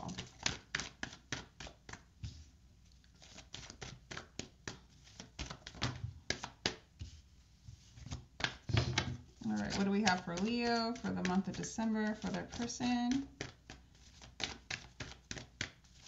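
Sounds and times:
cards being shuffled: 0:03.0 - 0:06.8, 0:07.8 - 0:16.0.

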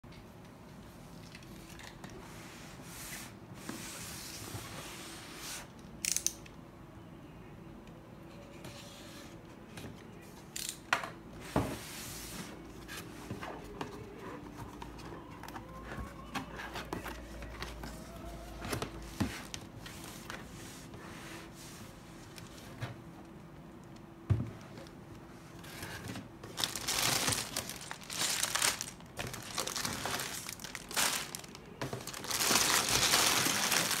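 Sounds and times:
plastic bags crinkling: 0:26.4 - 0:34.0.

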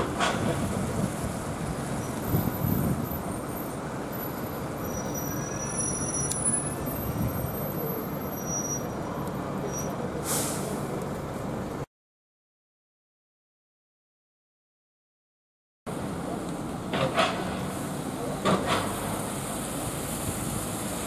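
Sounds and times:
bus engine running: 0:00.0 - 0:11.9, 0:15.9 - 0:21.0
tyres on wet road: 0:00.0 - 0:11.9, 0:15.9 - 0:21.0
air brakes hissing: 0:09.7 - 0:10.9.

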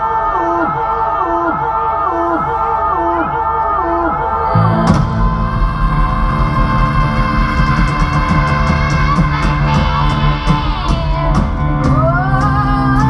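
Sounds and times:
live rock band: 0:04.6 - 0:13.0.

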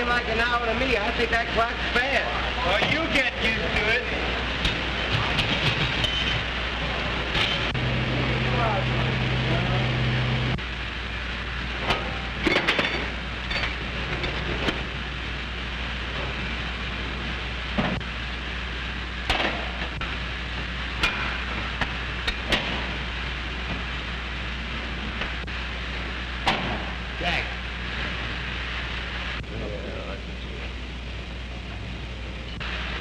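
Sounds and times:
film soundtrack hiss and hum: 0:00.0 - 0:33.0.

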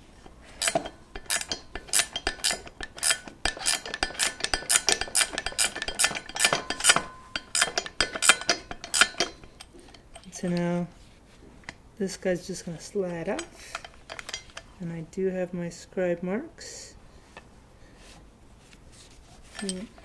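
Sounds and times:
wrench clinking on bolt: 0:00.5 - 0:10.7, 0:13.1 - 0:14.7, 0:19.6 - 0:20.0.

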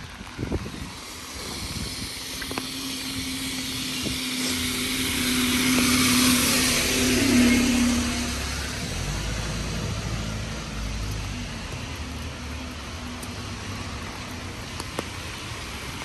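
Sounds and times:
low rumble: 0:00.0 - 0:12.2
tyre hiss on wet road: 0:00.0 - 0:16.0
vehicle engine hum: 0:00.0 - 0:16.0.

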